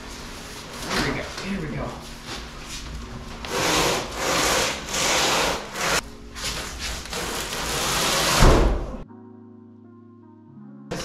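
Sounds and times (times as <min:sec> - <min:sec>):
cardboard box scraping on floor: 0:03.5 - 0:08.5.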